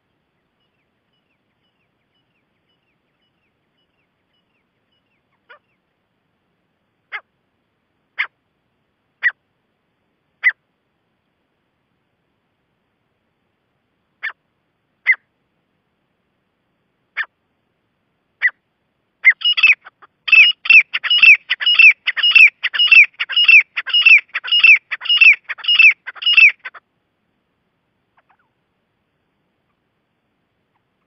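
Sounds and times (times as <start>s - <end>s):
francolin calling: 0.0s - 5.8s, 10.4s - 10.6s, 15.0s - 15.3s, 19.2s - 26.8s, 28.1s - 28.6s.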